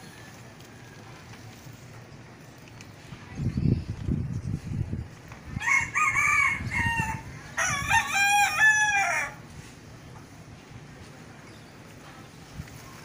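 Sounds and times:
rooster crowing: 5.6 - 9.4.

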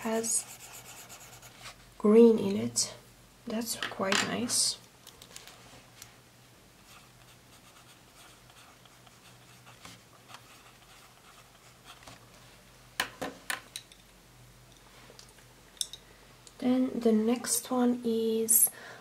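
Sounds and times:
pen scratching on paper: 0.2 - 1.5.

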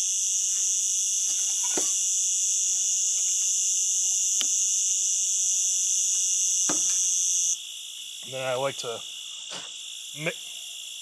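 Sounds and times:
night insects chirping: 0.0 - 11.0.

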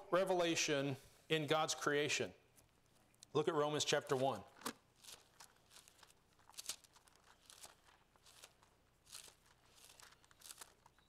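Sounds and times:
thin pages rustling: 4.6 - 11.0.

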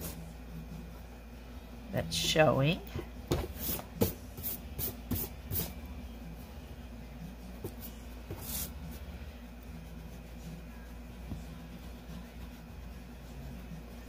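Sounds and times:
hand brushing across paper: 7.6 - 13.4
eraser rubbing on paper: 7.6 - 14.0.

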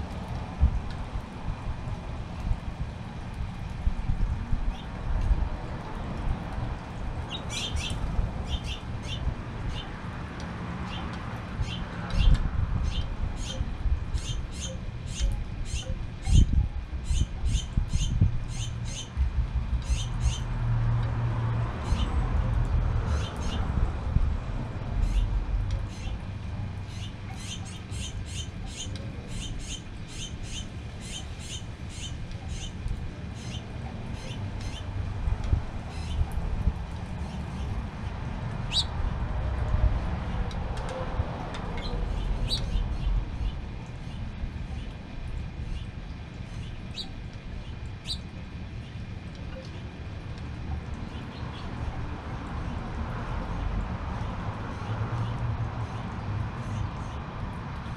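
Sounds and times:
low outdoor rumble: 0.0 - 57.9
small bird chirping: 38.7 - 38.9, 46.6 - 47.2, 48.0 - 48.2.

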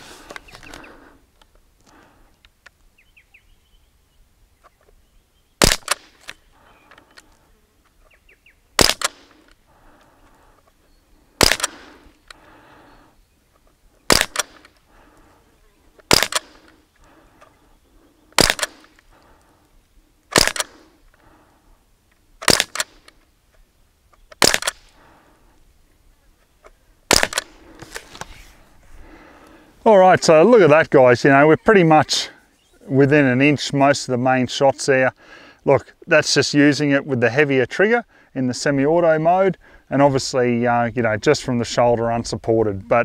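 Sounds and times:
air rifle shots: 5.6 - 6.4, 8.8 - 9.6, 11.4 - 12.1, 14.1 - 14.8, 16.0 - 16.8, 18.4 - 19.0, 20.3 - 21.0, 22.4 - 23.1, 24.3 - 25.0, 27.1 - 27.6.

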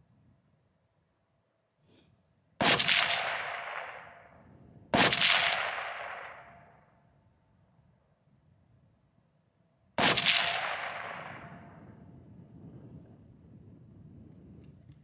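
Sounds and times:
rifle shots with echo: 2.6 - 6.9, 10.0 - 12.1.

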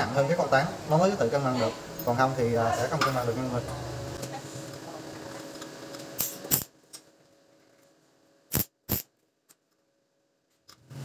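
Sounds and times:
welding arc clicks and snaps: 5.6 - 7.1, 8.5 - 9.8.

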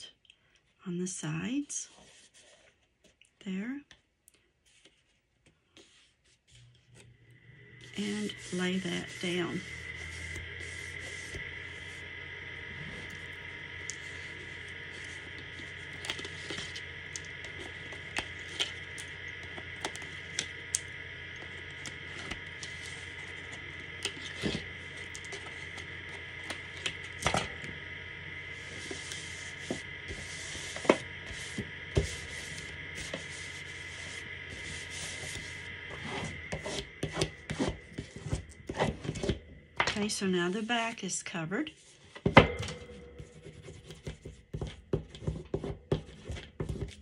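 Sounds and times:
faint steady hum: 0.0 - 47.0
short rustling scrapes: 1.8 - 2.9.

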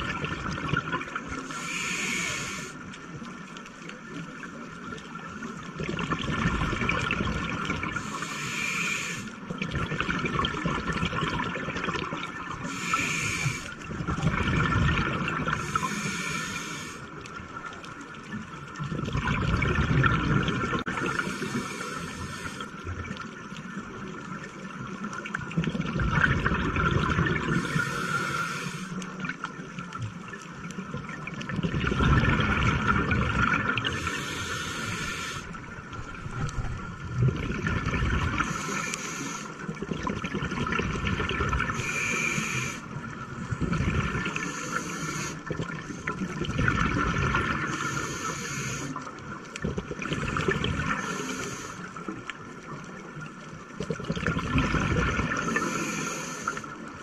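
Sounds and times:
exhaust bubbles gurgling: 0.0 - 1.4, 5.6 - 8.1, 9.5 - 16.2, 18.3 - 22.2, 22.9 - 28.4, 29.2 - 38.8, 39.7 - 48.8, 49.5 - 51.4, 52.8 - 56.0
regulator hiss on inhale: 1.4 - 3.0, 8.0 - 9.4, 12.6 - 13.9, 15.5 - 17.3, 21.0 - 22.9, 27.4 - 29.1, 33.8 - 35.6, 38.3 - 39.8, 41.6 - 43.6, 44.2 - 46.1, 47.6 - 49.2, 50.8 - 52.3, 55.3 - 57.0.

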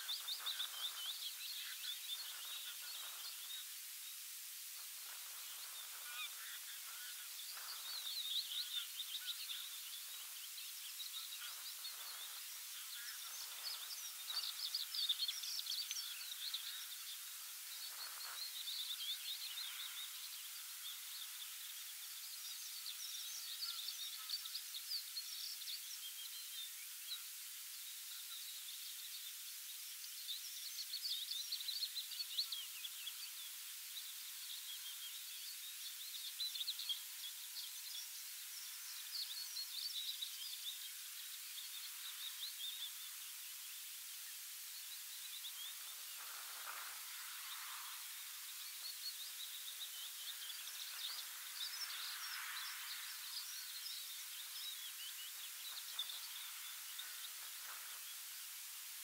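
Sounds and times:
distant lower bird calls: 0.0 - 4.2
songbirds twittering: 0.0 - 59.0
steady hiss: 0.0 - 59.0.

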